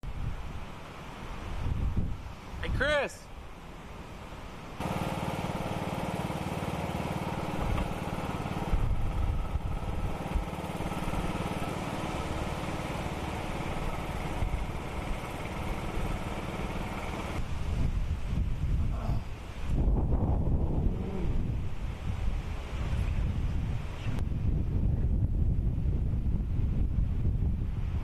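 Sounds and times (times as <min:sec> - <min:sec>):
riding lawn mower engine running: 0:03.9 - 0:18.6.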